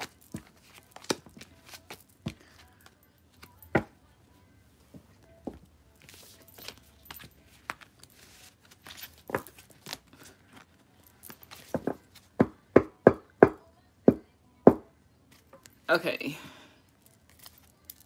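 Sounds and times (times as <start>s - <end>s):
cards snapping: 0.0s - 2.4s
cards rustling and sliding: 0.0s - 3.5s, 6.0s - 12.3s.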